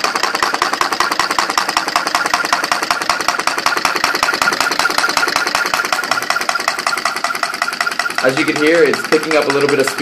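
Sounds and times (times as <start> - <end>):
small engine rapid even clicking: 0.0 - 10.0.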